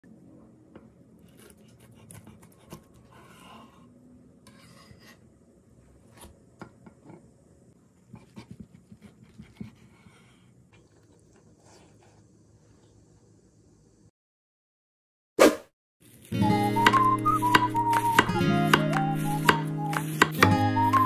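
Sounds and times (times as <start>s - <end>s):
knife cutting crispy tortilla: 1.2s - 3.7s.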